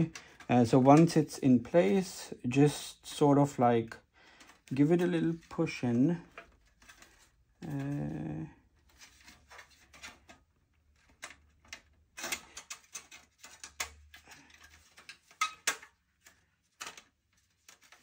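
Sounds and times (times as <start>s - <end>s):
sheet metal clicking and scraping: 11.0s - 18.0s.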